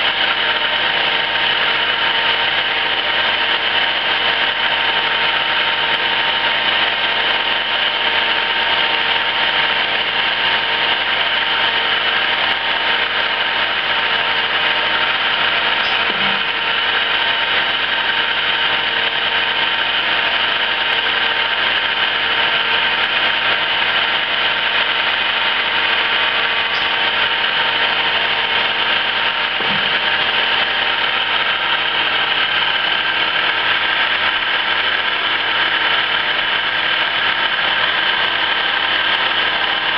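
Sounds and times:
lathe machine hum: 0.0s - 39.9s.

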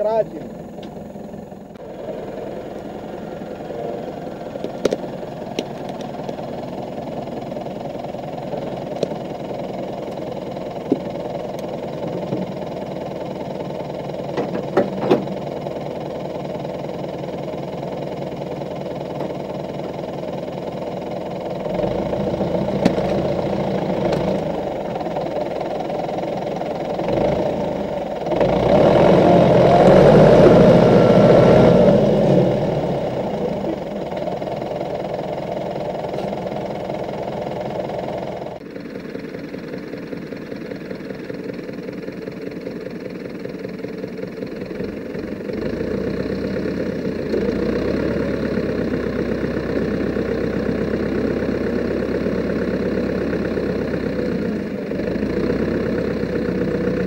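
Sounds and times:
tractor diesel engine running: 0.0s - 57.0s
sharp knocks and clanks: 14.3s - 15.4s.

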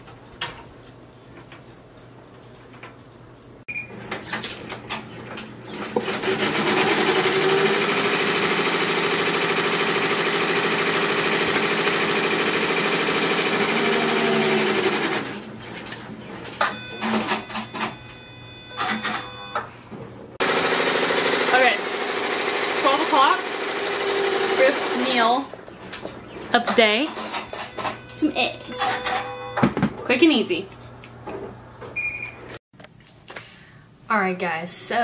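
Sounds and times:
embroidery machine stitching: 5.7s - 16.0s, 20.4s - 25.4s.

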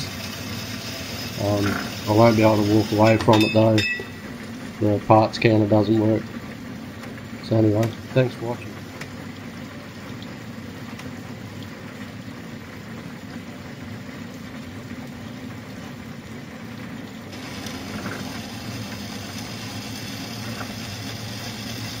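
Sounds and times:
bandsaw running: 0.0s - 3.3s, 17.3s - 22.0s
wire brush spinning against blade: 0.0s - 4.0s
coolant spraying: 0.0s - 10.5s, 17.3s - 22.0s.

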